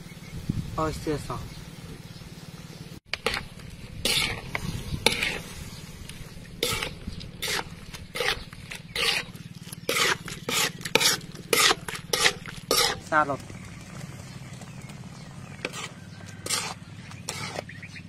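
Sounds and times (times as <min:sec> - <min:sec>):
spatula scraping a wok: 0:03.1 - 0:13.1, 0:15.5 - 0:17.8.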